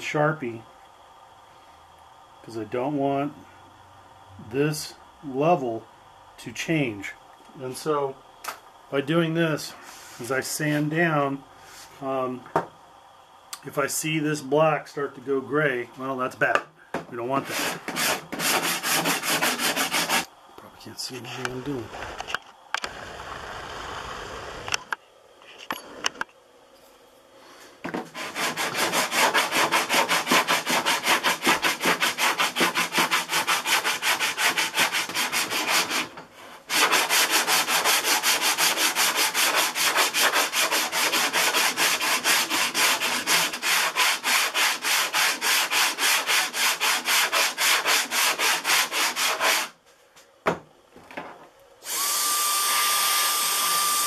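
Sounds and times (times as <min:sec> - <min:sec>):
sanding block rubbing on filler: 0:17.4 - 0:20.3, 0:28.1 - 0:49.8.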